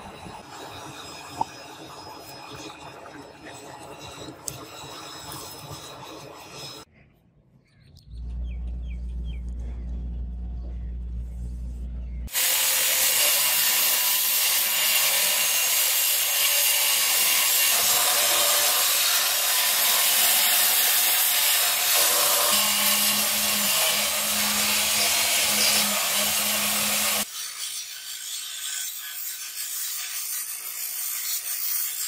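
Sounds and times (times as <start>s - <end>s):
blade grinding on abrasive belt: 3.3s - 6.9s, 12.3s - 32.0s.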